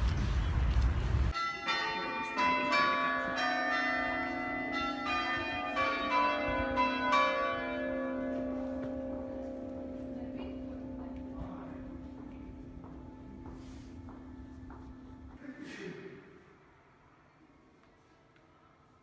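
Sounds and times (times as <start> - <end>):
bells ringing: 1.3 - 15.4.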